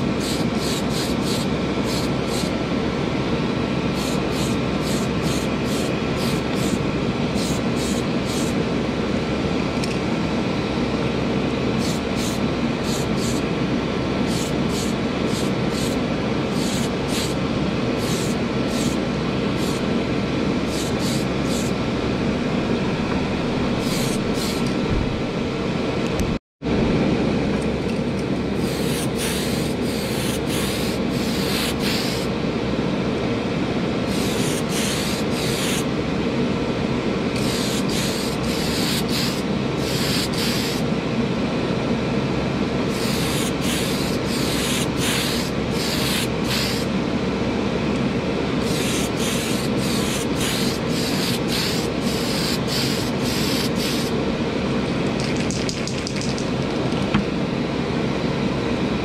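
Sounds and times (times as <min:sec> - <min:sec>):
spray paint bursts: 0:00.0 - 0:02.6, 0:03.9 - 0:08.6, 0:11.8 - 0:13.4, 0:14.2 - 0:17.4, 0:18.0 - 0:19.0, 0:19.6 - 0:19.9, 0:20.7 - 0:21.8, 0:23.8 - 0:24.7, 0:28.6 - 0:32.3, 0:34.1 - 0:35.9, 0:37.4 - 0:40.8, 0:42.9 - 0:46.9, 0:48.6 - 0:54.1, 0:55.2 - 0:56.6
exhaust fan rushing: 0:00.0 - 0:59.0.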